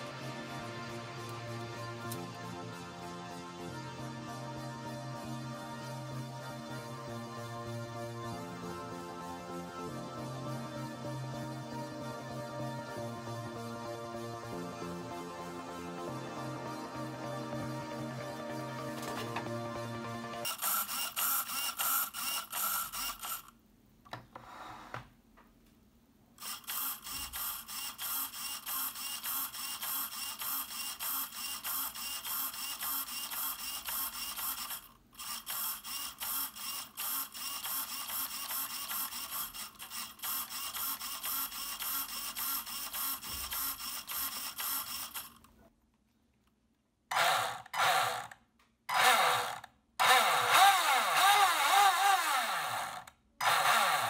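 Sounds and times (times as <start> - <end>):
electric motor whining: 48.9 - 54.0.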